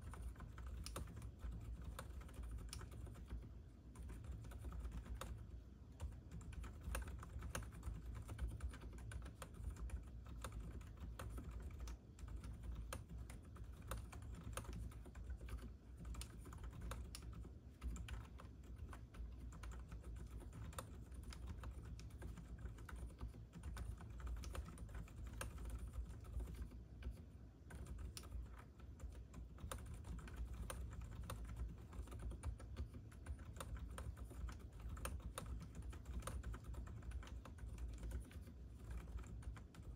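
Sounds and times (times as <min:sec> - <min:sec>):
quiet keyboard typing: 0:00.0 - 0:39.9.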